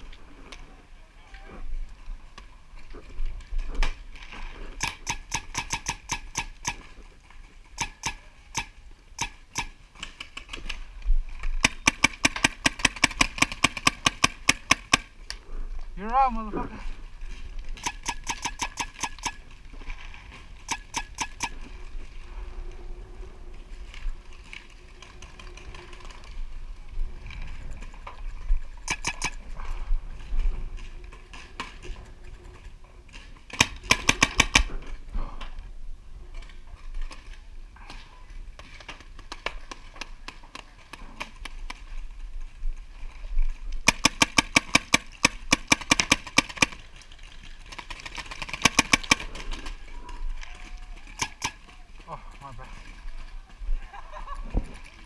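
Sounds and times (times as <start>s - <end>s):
paintball markers firing: 4.7s - 7.0s, 7.7s - 10.8s, 11.6s - 15.1s, 17.8s - 19.4s, 20.6s - 21.7s, 28.8s - 29.5s, 33.5s - 34.7s, 43.8s - 46.8s, 48.0s - 49.7s, 51.1s - 51.7s.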